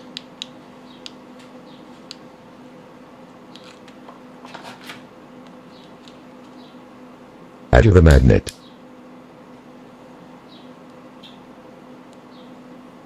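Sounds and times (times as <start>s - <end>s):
faint low hum: 5.4s - 13.0s.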